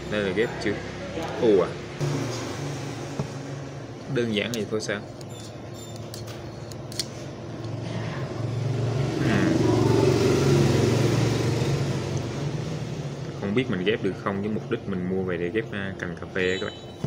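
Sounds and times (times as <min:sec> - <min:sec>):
vehicle engine passing: 0:00.0 - 0:04.3, 0:07.4 - 0:14.2.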